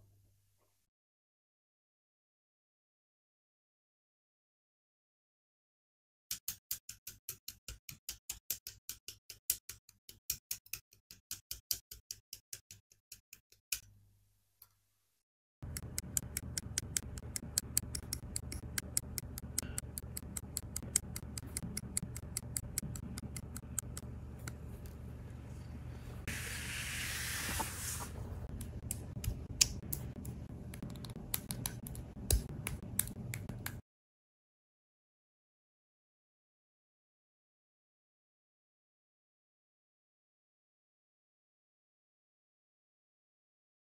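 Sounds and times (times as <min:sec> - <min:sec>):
steady low hum: 0:15.6 - 0:26.5, 0:28.0 - 0:33.8
brief hiss: 0:26.3 - 0:28.2.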